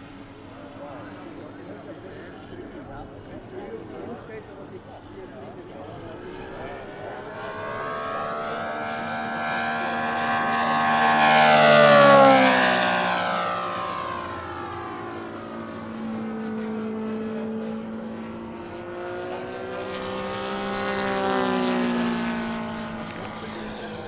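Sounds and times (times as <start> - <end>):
model plane engine flying past: 0.0 - 24.0.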